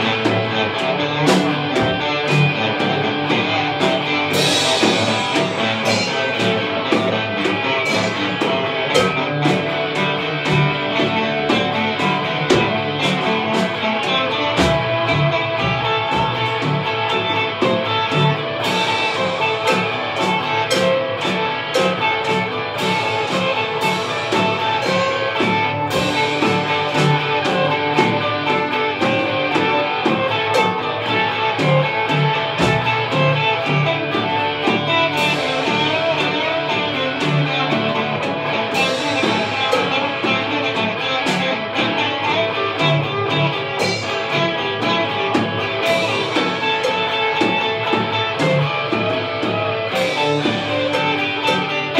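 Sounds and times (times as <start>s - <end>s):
electric guitars: 0.0s - 51.9s
live rock band: 0.0s - 51.9s
cymbal crashes and drum hits: 4.4s - 9.6s.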